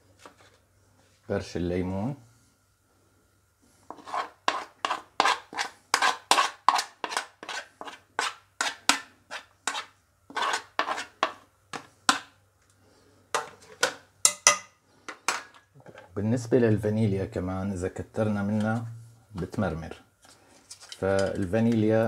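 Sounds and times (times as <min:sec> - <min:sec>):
teaspoon scraping plastic dish: 0:03.9 - 0:12.3.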